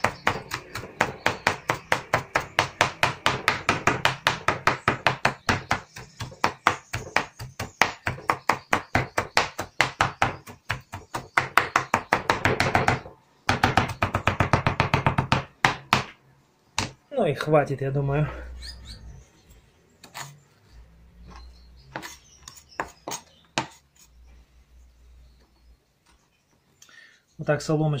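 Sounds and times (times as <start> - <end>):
knife chopping on plastic board: 0.0 - 16.2, 21.3 - 23.8.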